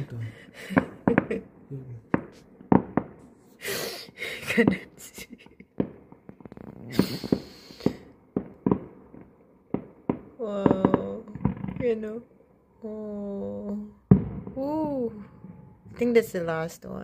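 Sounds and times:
distant fireworks bangs: 0.0 - 3.4, 4.1 - 12.6, 14.0 - 16.2
fireworks crackle: 0.0 - 12.2.

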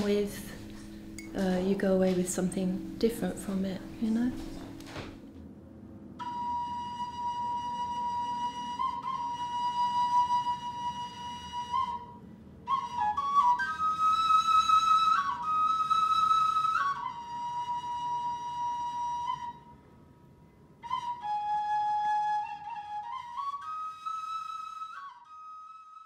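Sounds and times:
bamboo flute melody: 6.2 - 19.9, 20.8 - 26.0.

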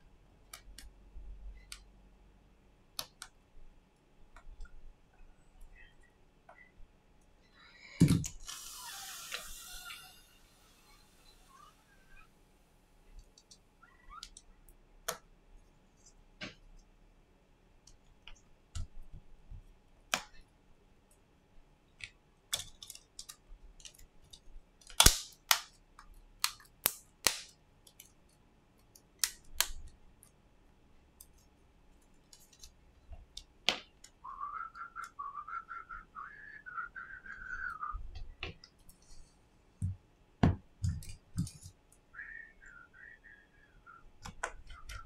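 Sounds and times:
wavering whistle-like tone: 34.2 - 38.0, 42.1 - 44.1.

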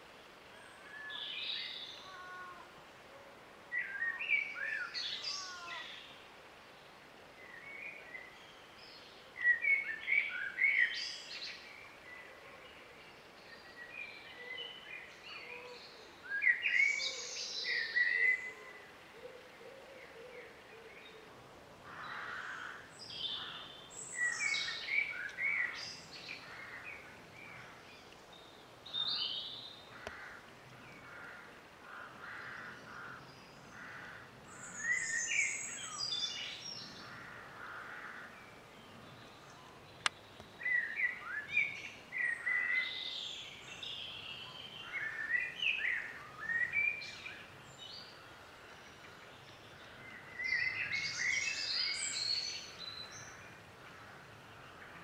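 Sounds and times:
songbirds chirping: 0.0 - 55.0.

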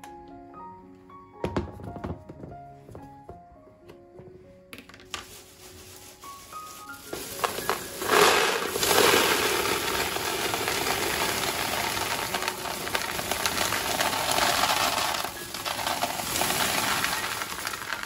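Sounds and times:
dried peas rattling into plastic canister: 4.9 - 18.0.

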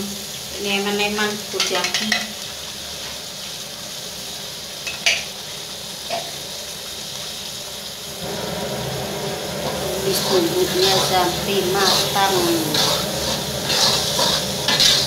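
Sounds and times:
paste sizzling in hot oil: 0.0 - 15.0
spatula clacking against pan: 11.9 - 15.0.

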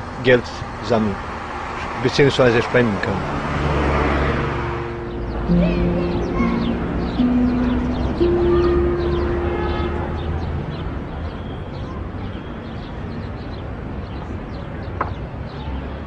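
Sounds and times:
held low musical note: 4.4 - 11.2.

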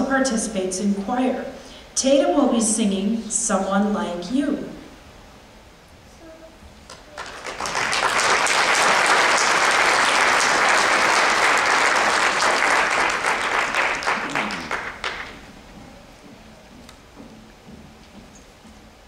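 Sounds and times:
audience applauding: 6.9 - 15.4.

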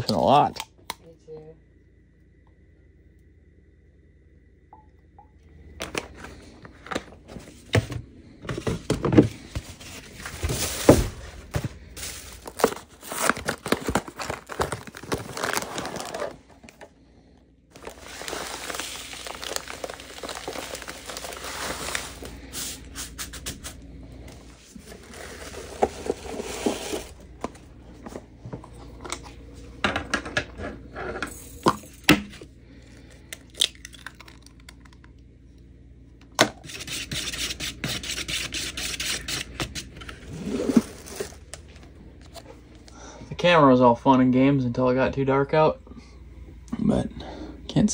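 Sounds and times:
paper plates knocking and rustling: 5.9 - 15.6
foil package crinkling and tearing: 10.0 - 16.8, 17.7 - 23.8, 24.7 - 27.2, 36.6 - 42.4.

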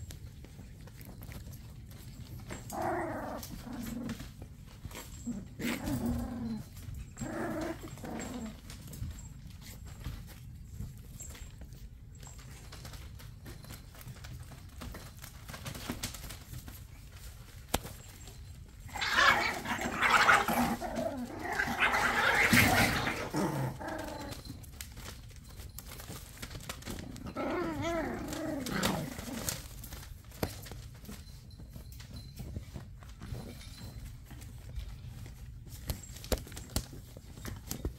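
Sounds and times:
paws scuffling on newspaper: 0.0 - 37.9
puppies yapping and whining: 0.4 - 14.0, 18.0 - 25.1.

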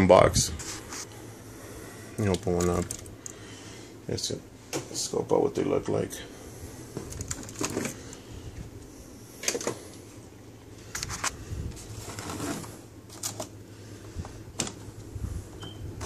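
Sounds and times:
cardboard and packaging rustling: 6.9 - 8.2, 10.9 - 13.6.

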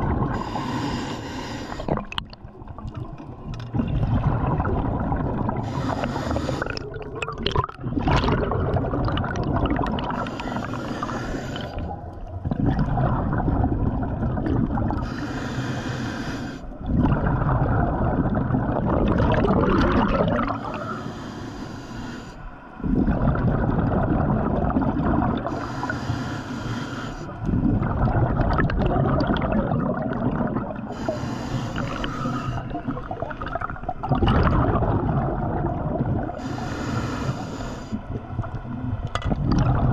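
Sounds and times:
gurgling exhaled bubbles: 0.0 - 0.9, 1.7 - 15.3, 16.7 - 21.0, 22.8 - 25.9, 27.4 - 39.9
hissing regulator inhales: 0.4 - 1.9, 5.6 - 6.8, 10.2 - 11.9, 15.0 - 16.7, 20.7 - 22.6, 25.5 - 27.4, 30.9 - 32.8, 36.4 - 38.0.

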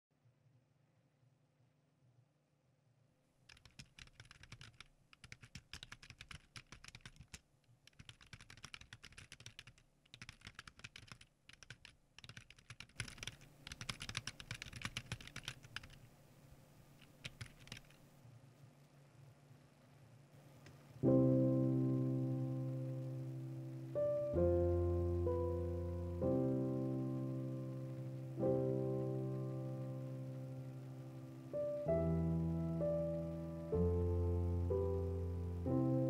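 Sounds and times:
typing on keyboard: 3.5 - 16.1, 17.0 - 18.1
low steady hum: 13.0 - 36.0.

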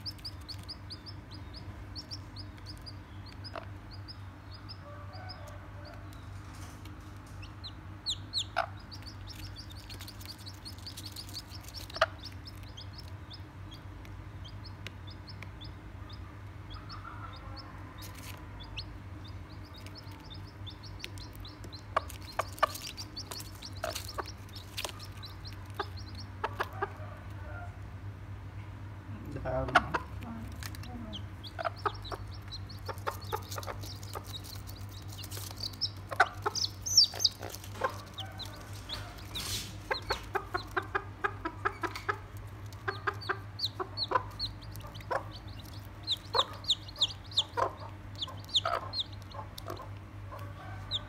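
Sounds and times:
baby chicks peeping: 0.0 - 51.0
hen clucking low: 29.3 - 51.0.

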